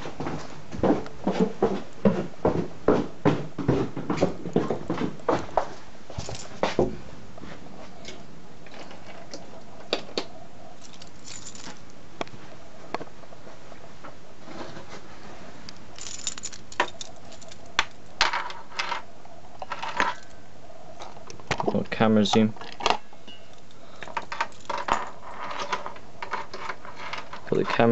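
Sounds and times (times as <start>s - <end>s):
metallic jingles: 10.8s - 11.9s, 15.8s - 18.2s, 23.3s - 25.2s.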